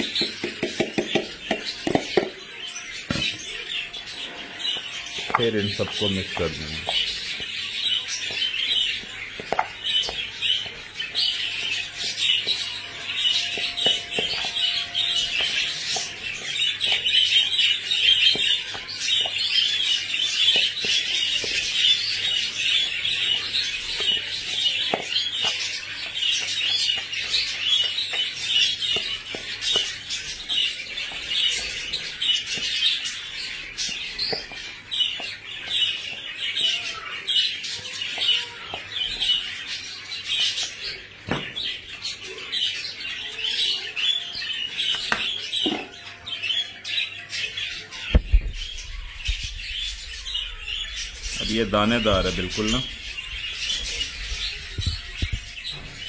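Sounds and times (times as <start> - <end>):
knocks in a plastic bowl: 0.0 - 2.4
small birds chirping: 0.0 - 56.0.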